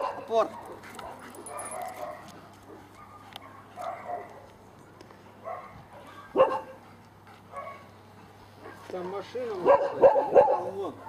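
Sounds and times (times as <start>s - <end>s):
faint dog barking: 0.0s - 4.5s, 5.4s - 6.8s, 7.5s - 7.9s, 8.6s - 11.0s.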